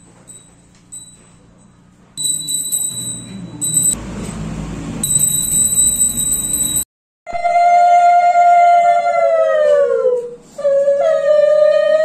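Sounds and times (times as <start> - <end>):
brass hand bell ringing: 2.2 - 4.0, 5.0 - 6.8.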